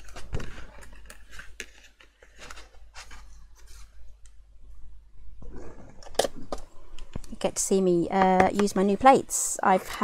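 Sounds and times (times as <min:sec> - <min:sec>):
cardstock rustling and sliding: 0:00.0 - 0:04.1.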